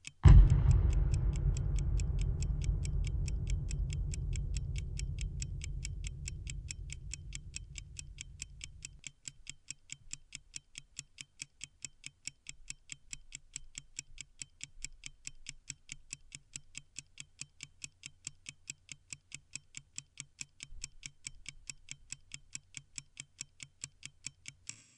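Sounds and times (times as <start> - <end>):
low rumble: 0.2 - 9.0
rapid mechanical ticking: 0.2 - 9.0.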